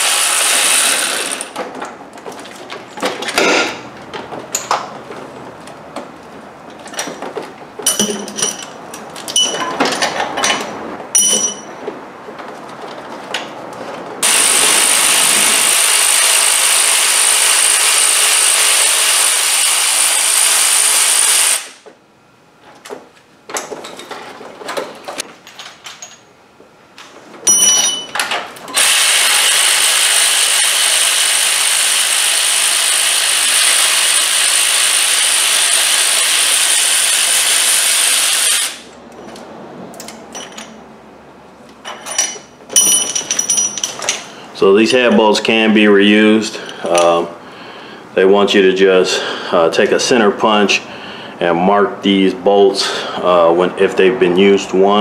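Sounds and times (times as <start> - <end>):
power ratchet spinning: 0.0 - 1.6, 14.2 - 21.8, 28.7 - 38.9.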